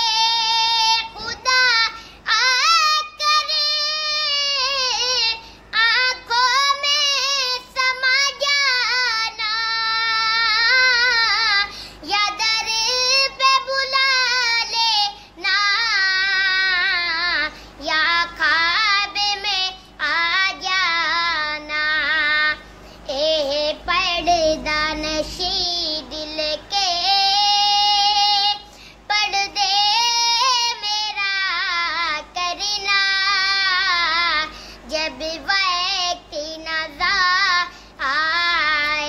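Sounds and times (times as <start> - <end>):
child breathing: 11.7 - 12.0, 34.5 - 34.9.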